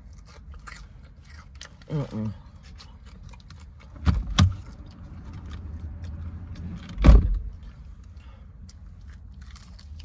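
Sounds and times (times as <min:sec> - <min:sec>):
person chewing and smacking: 0:00.0 - 0:06.8, 0:07.5 - 0:10.0
dull thumps in car cabin: 0:06.9 - 0:07.5.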